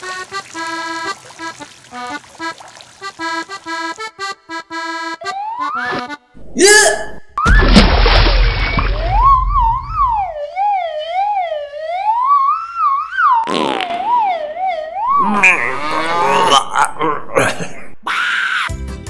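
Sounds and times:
wavering siren-like wail: 0:05.2 - 0:06.0, 0:08.6 - 0:16.5
dense pitched sound: 0:15.0 - 0:18.1.

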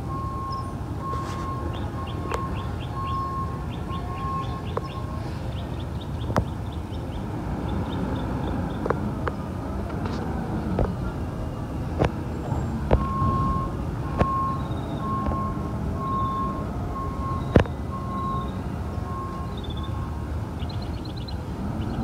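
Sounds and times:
reverse alarm beeping: 0:00.0 - 0:05.6, 0:12.9 - 0:20.4.

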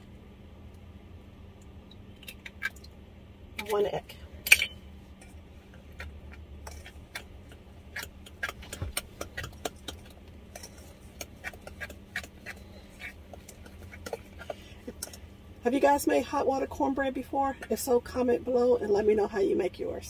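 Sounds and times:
fork scraping metal bowl: 0:05.2 - 0:15.2.

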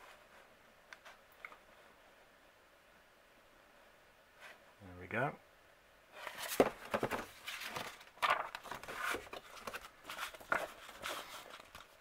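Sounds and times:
paper pages rustling: 0:06.2 - 0:12.0.

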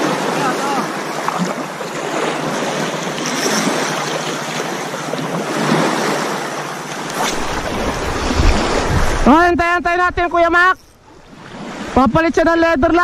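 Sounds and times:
waves washing over pebbles: 0:00.0 - 0:09.4
wind on microphone: 0:07.3 - 0:10.5.

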